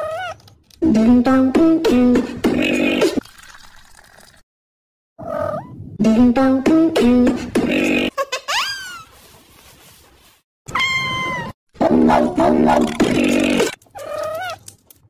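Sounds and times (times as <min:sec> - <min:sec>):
drawn-out meow-like call: 0:10.7 - 0:11.5.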